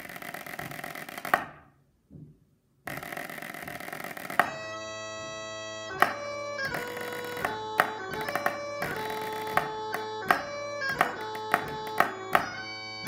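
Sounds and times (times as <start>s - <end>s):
drumstick strikes: 3.5s - 4.6s, 6.0s - 12.6s
bagpipes playing quick march: 3.5s - 13.0s.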